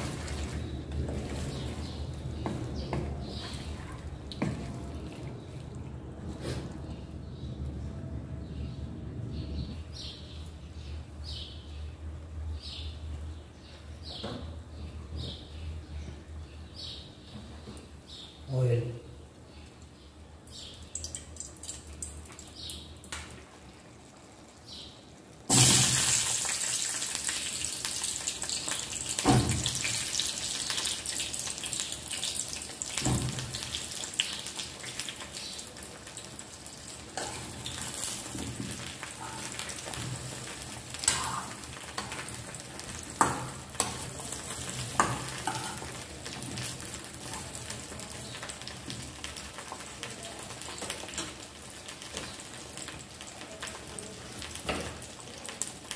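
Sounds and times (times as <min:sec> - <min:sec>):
food sizzling in hot oil: 0:25.5 - 0:55.9.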